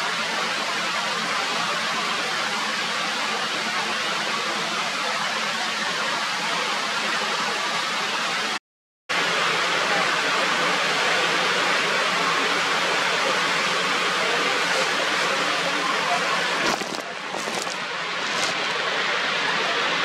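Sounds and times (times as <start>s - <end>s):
steady rushing noise: 14.7s - 19.6s.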